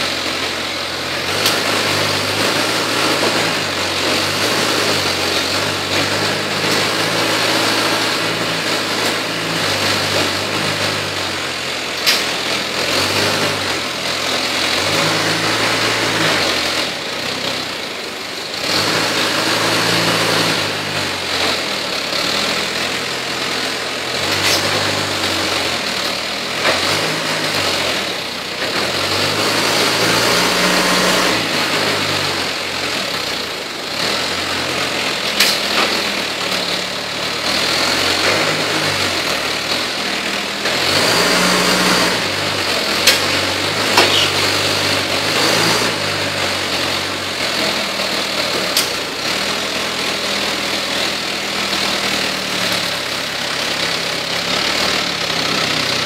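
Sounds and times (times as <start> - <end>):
forklift engine revving: 0.0 - 56.0.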